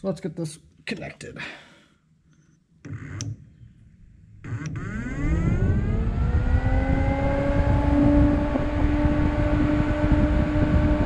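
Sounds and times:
electric cooling fans whining: 0:04.4 - 0:11.0.

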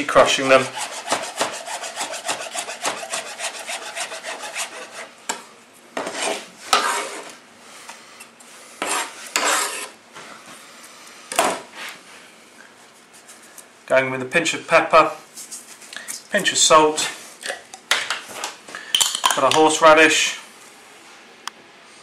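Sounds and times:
knife chopping on board: 0:01.0 - 0:03.2.

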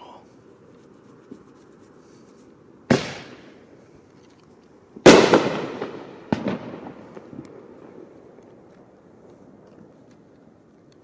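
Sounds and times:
fireworks exploding: 0:02.9 - 0:03.6, 0:05.0 - 0:09.6.

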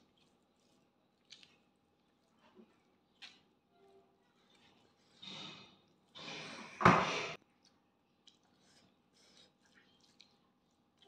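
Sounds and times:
chewing clicks: 0:01.2 - 0:02.3, 0:07.6 - 0:08.9
wet breathy mouth sound: 0:08.2 - 0:11.0.

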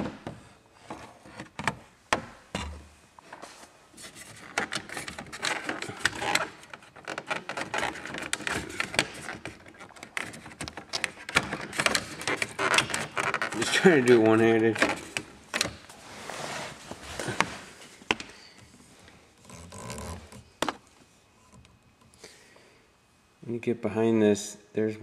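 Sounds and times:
plastic parts clicking and rattling: 0:04.3 - 0:15.8.

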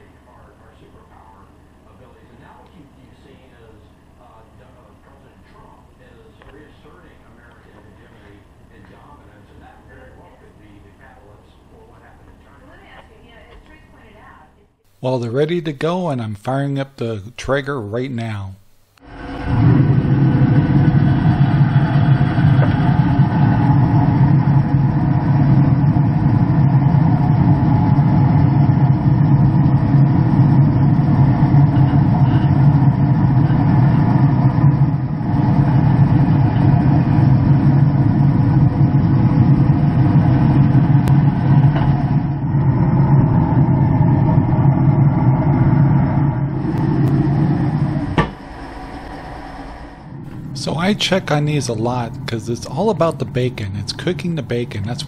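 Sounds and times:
grill fan humming: 0:00.0 - 0:55.0.

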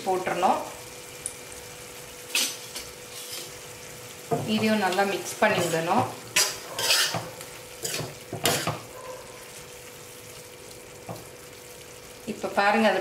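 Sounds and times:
gravy sizzling: 0:00.0 - 0:13.0
spoon scraping a pan: 0:02.3 - 0:03.6, 0:04.3 - 0:09.6.

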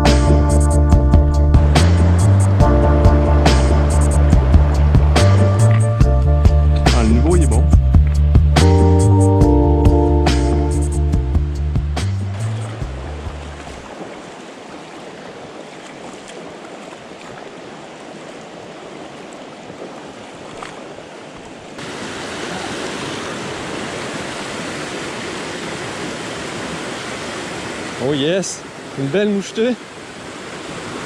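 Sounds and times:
water rushing over stones: 0:01.5 - 0:06.1, 0:12.0 - 0:31.0.

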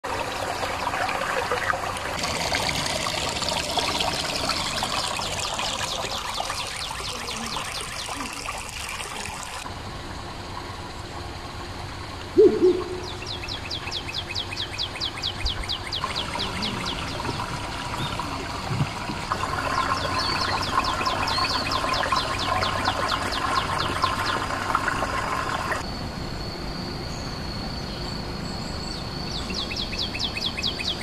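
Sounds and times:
water pouring into pond: 0:00.0 - 0:09.7, 0:16.0 - 0:25.8
bird low call: 0:12.3 - 0:18.6
high falling bird chirps: 0:12.4 - 0:17.3.

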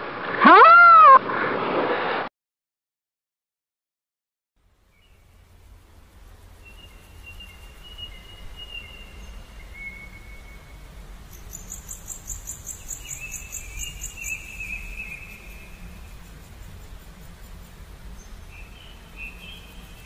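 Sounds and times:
high pulsing chirp: 0:06.5 - 0:20.0.

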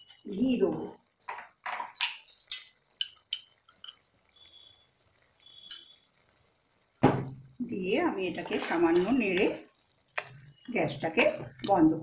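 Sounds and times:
simmering curry popping: 0:00.0 - 0:12.0
spoon clinking on metal: 0:01.7 - 0:04.0.

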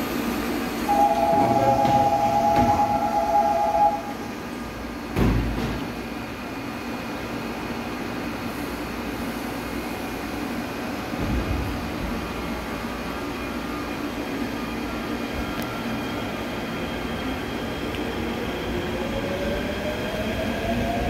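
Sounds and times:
electric train humming: 0:00.0 - 0:05.1
two-tone warning signal: 0:00.9 - 0:04.2.

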